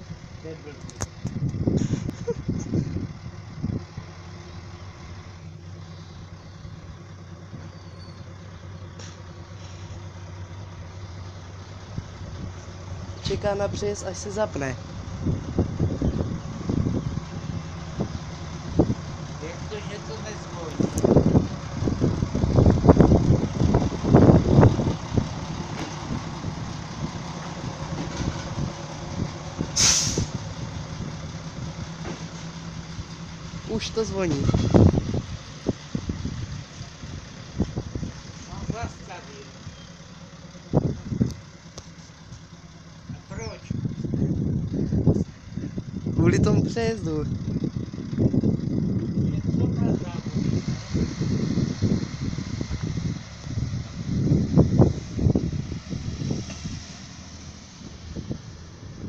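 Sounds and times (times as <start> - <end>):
diesel engine idling: 0.0 - 59.0
wheels clattering over track: 27.2 - 29.9
compressed air hiss: 29.8 - 30.4.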